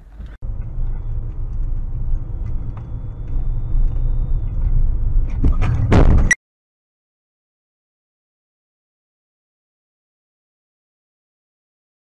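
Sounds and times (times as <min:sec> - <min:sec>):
car engine and road rumble: 0:00.0 - 0:06.4.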